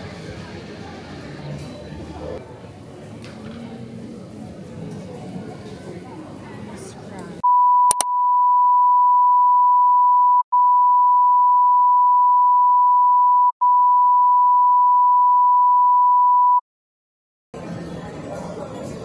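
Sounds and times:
censor bleep tone: 0:07.4 - 0:16.6.

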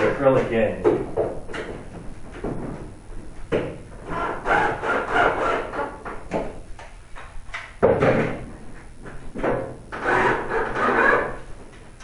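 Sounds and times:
cordless drill driving screws: 0:10.0 - 0:11.3.

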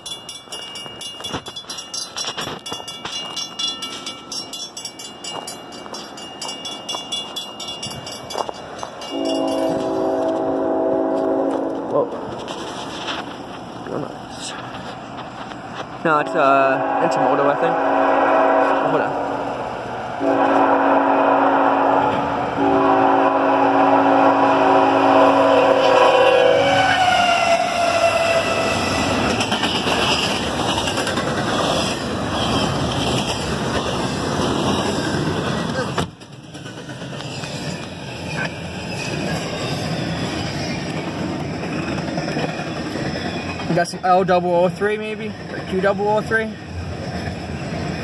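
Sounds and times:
crossing warning bell ringing: 0:00.0 - 0:11.9
train rumble: 0:00.0 - 0:48.0
locomotive air horn chord: 0:09.1 - 0:12.0, 0:16.2 - 0:19.2, 0:20.2 - 0:28.7.

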